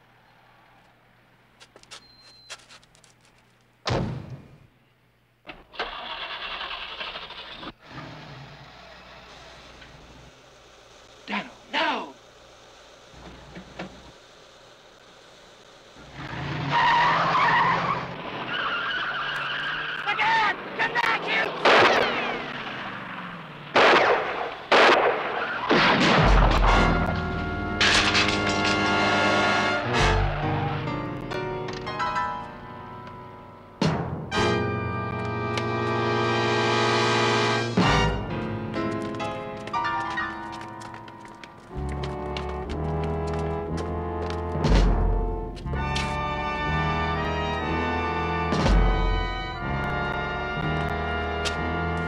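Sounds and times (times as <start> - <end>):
car engine starting and running: 5.5 - 32.0, 32.6 - 52.0
loud gunshot: 21.6 - 22.4, 23.8 - 26.9
brass orchestral music: 26.4 - 33.1, 34.2 - 41.0, 41.6 - 52.0.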